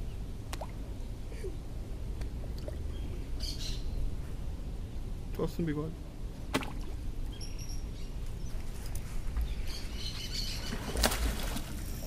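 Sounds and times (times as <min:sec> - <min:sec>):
low steady rumble: 0:00.0 - 0:12.0
birds chirping: 0:02.7 - 0:05.5, 0:06.9 - 0:11.4.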